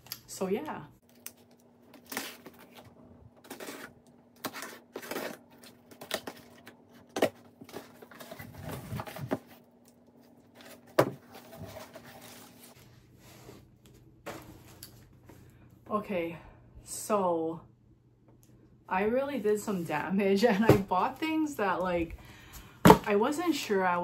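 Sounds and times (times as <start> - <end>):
cardboard box being unpacked: 1.4 - 9.6.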